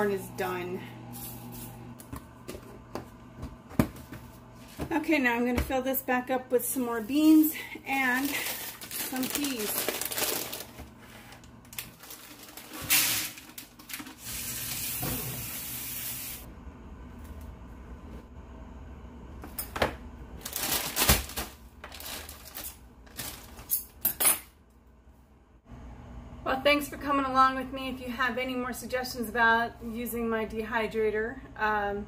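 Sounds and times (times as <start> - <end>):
frozen peas pouring onto tray: 8.1 - 10.8, 11.9 - 14.0.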